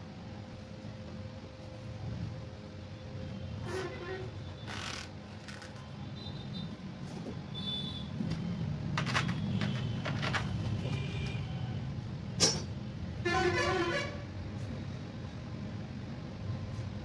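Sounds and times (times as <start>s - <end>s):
vehicle horn: 7.5s - 8.2s, 10.8s - 11.5s, 13.2s - 14.3s
hand tools clicking and knocking: 8.9s - 10.9s.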